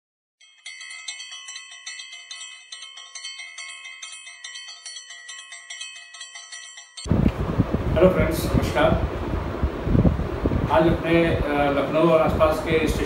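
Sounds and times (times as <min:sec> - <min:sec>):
bell-like chime music: 0:00.4 - 0:07.1.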